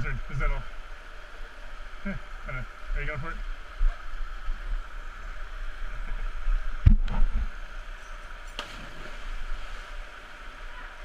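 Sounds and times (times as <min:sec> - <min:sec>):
person splashing into pool: 0:08.6 - 0:09.9.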